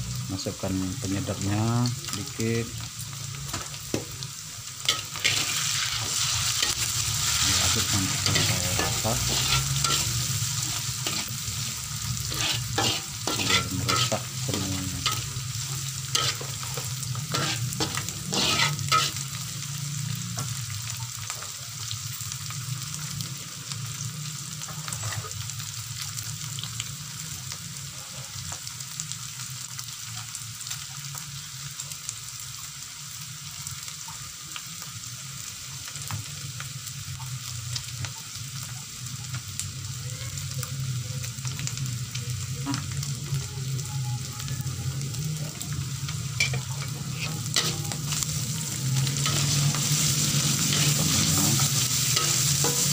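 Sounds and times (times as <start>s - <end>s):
food sizzling in oil: 0.0s - 52.9s
metal spatula scraping pan: 4.9s - 19.3s, 46.4s - 48.2s, 49.0s - 52.9s.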